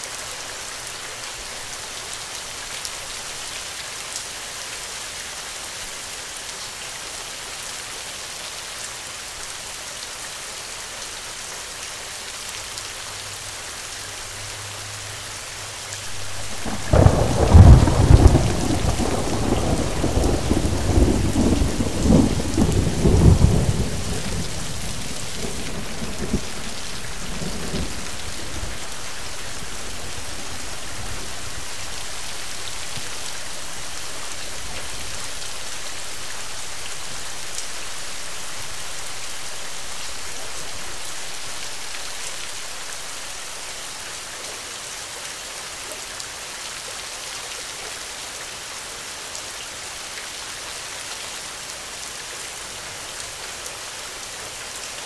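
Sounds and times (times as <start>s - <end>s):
rain falling: 0.0s - 55.0s
thunder rolling: 16.1s - 31.8s.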